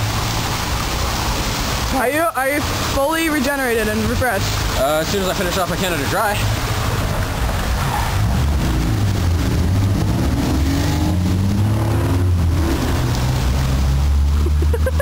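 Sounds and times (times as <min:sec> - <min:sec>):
vehicle engine rumbling: 0:04.1 - 0:15.0.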